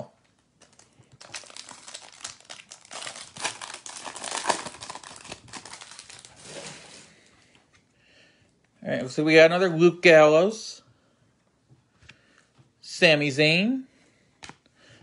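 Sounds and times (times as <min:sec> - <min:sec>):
foil wrapper tearing and crinkling: 0:00.6 - 0:06.9.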